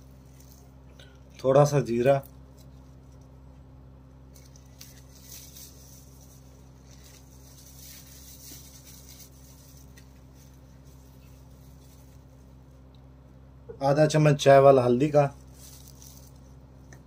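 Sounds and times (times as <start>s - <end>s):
low electrical hum: 0.0s - 17.0s
seeds sprinkled into a pot: 4.2s - 12.6s, 15.4s - 16.6s.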